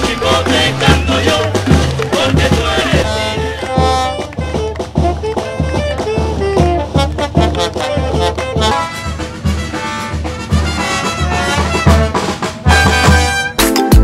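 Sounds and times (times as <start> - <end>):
bass drum beat: 0.0 - 14.0
brass band playing dance music: 0.0 - 14.0.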